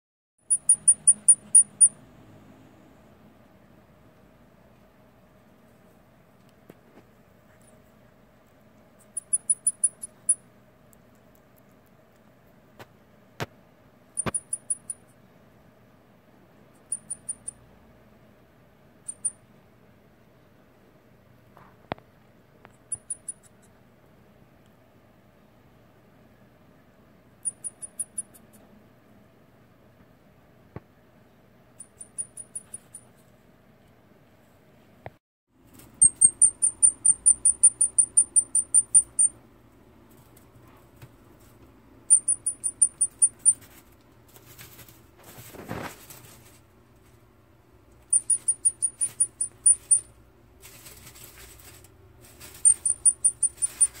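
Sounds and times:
baby hedgehog high-pitched peeps: 0.4s - 2.0s, 9.0s - 10.4s, 14.2s - 15.0s, 16.8s - 17.6s, 19.1s - 19.4s, 22.8s - 23.8s, 27.4s - 28.6s, 31.8s - 33.0s, 35.8s - 39.4s, 42.1s - 43.8s, 48.0s - 50.2s, 52.4s - 54.0s
rustle of wood-shaving bedding: 43.6s - 46.7s, 50.6s - 52.6s.

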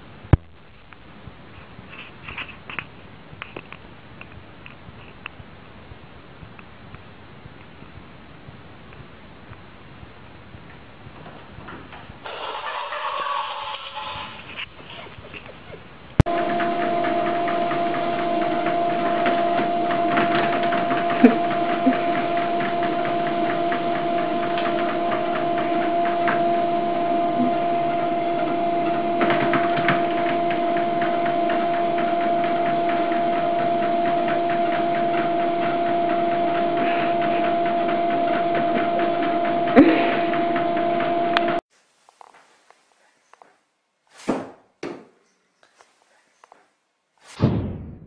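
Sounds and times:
treadmill motor humming: 16.2s - 41.6s.

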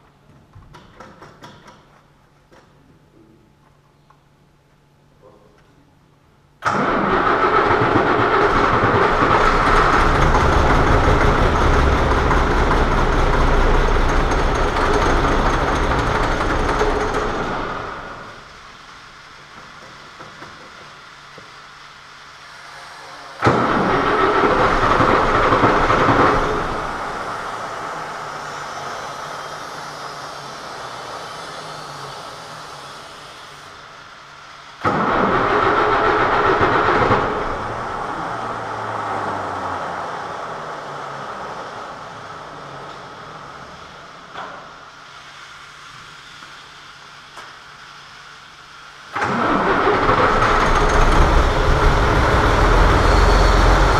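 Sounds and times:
diesel engine starter cranking: 6.6s - 18.5s, 23.4s - 28.6s, 34.8s - 39.9s, 49.1s - 53.9s.

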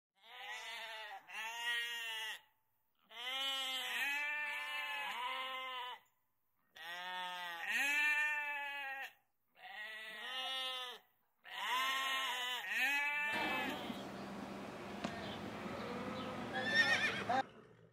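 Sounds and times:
sheep bleating: 0.2s - 6.1s, 6.7s - 17.4s.

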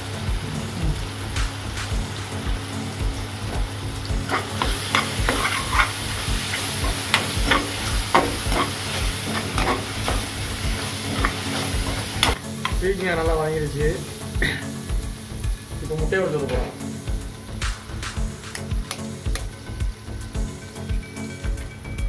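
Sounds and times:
vegetables sizzling: 0.0s - 22.0s
metal ladle scraping pan: 4.3s - 12.8s.

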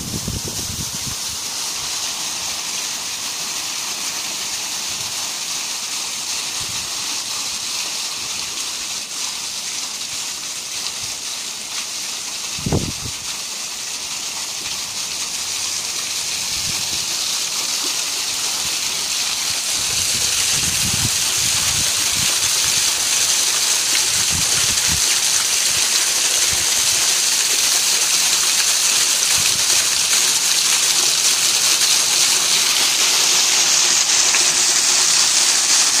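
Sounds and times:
waterfall splashing into pool: 0.0s - 36.0s.

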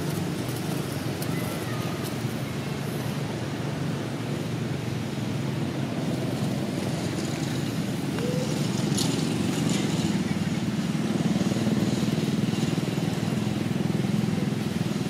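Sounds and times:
vehicle engine rumbling: 0.0s - 15.0s.

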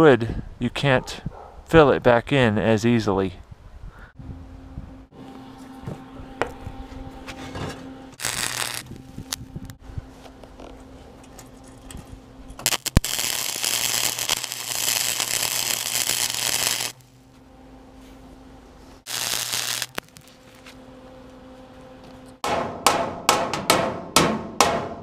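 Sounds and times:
steady low hum: 3.4s - 23.3s
welder arc crackling: 8.2s - 9.8s, 12.6s - 17.1s, 19.0s - 20.7s.

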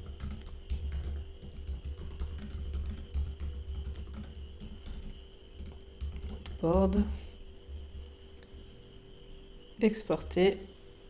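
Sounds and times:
typing on computer keyboard: 0.0s - 6.7s
faint background music: 0.0s - 11.0s.

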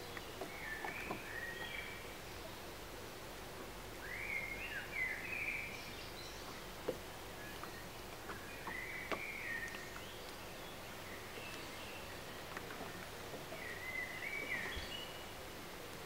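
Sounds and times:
low outdoor background hush: 0.0s - 16.0s
songbirds singing: 0.0s - 16.0s.

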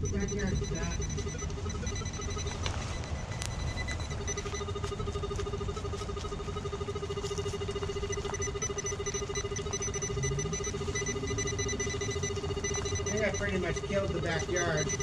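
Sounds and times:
person talking: 0.0s - 1.2s, 13.1s - 15.0s
metal detector pulsing buzz: 0.0s - 15.0s.

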